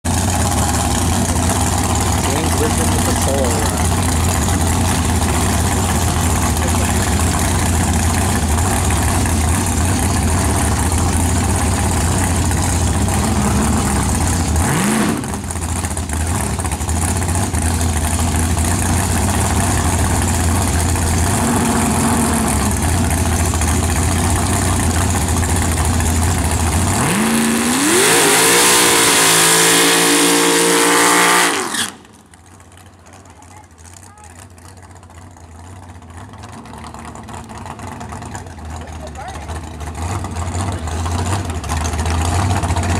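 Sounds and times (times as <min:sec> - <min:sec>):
race car engine revving: 0:00.1 - 0:32.2
engine backfire: 0:00.1 - 0:33.0.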